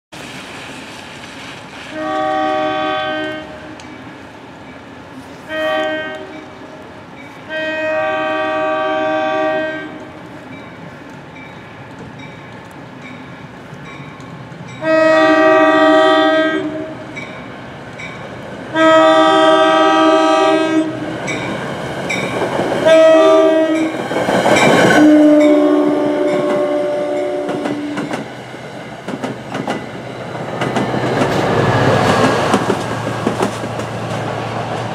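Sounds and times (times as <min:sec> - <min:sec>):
train rumble and wheel clatter: 0:00.2 - 0:34.9
train air horn blasts: 0:01.9 - 0:04.0, 0:05.3 - 0:06.8, 0:07.5 - 0:10.2, 0:14.8 - 0:17.2, 0:18.7 - 0:21.1, 0:22.8 - 0:24.0, 0:24.9 - 0:28.1.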